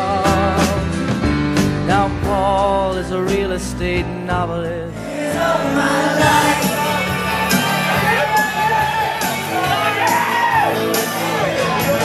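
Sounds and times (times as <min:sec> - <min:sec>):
crowd voices and shouts: 0:04.9 - 0:12.0
loud dance music with singing: 0:04.9 - 0:12.0.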